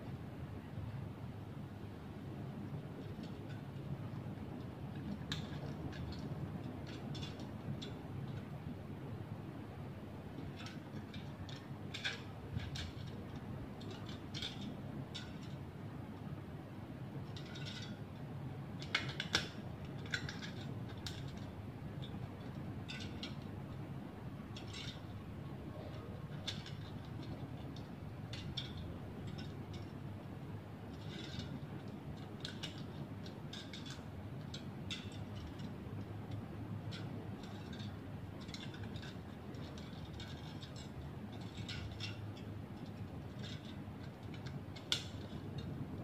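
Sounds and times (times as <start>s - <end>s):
thin sheet metal clicking and crinkling: 2.5s - 9.2s, 10.1s - 16.4s, 17.2s - 46.0s.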